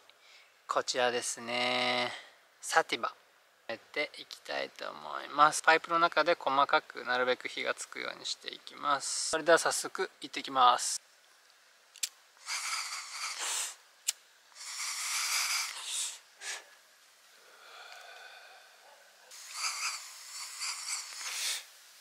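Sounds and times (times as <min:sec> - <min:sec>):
pipe smoking draws and exhales: 0:14.6 - 0:18.7, 0:19.4 - 0:21.8.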